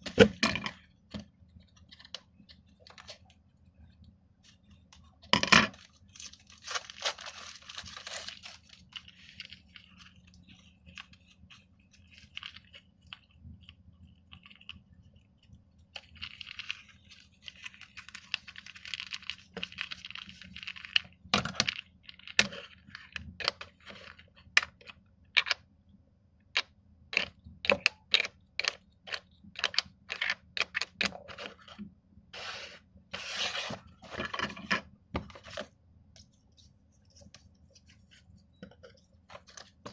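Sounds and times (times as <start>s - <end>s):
plastic wrapping crinkling and tearing: 5.7s - 11.2s.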